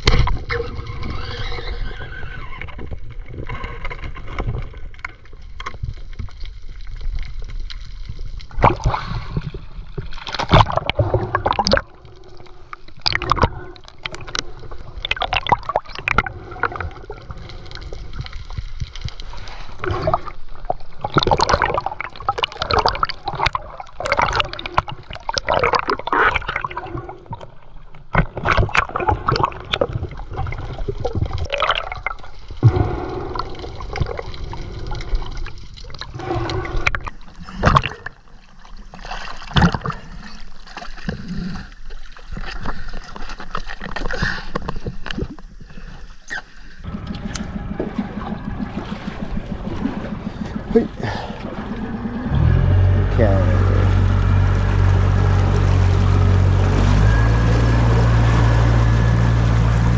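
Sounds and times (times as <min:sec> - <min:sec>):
water gurgling and sloshing: 0:00.0 - 0:59.9
knocks and clatter: 0:46.9 - 0:53.1.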